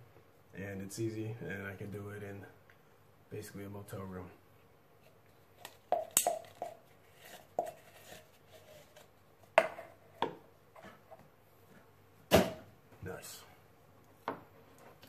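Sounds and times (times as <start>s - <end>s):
metal spoon scraping metal can: 6.4s - 9.0s.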